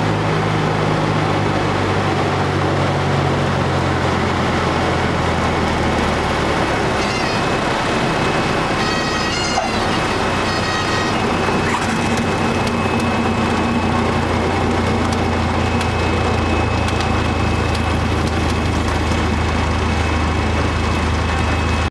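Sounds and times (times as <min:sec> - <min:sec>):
aircraft engine idling: 0:00.0 - 0:21.9
high whine: 0:00.0 - 0:21.9
wavering tone: 0:06.8 - 0:17.8.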